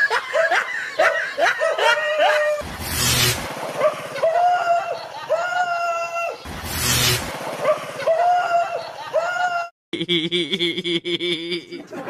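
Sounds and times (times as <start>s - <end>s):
dog yelping: 0.1s - 2.6s.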